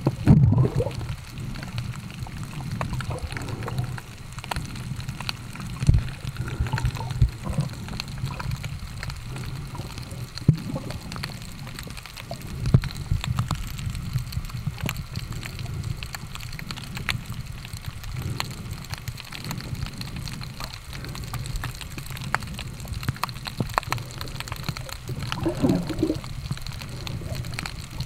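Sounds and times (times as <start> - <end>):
muffled underwater water wash: 0.0 - 28.0
underwater clicks: 0.0 - 28.0
underwater thumps: 25.4 - 26.2.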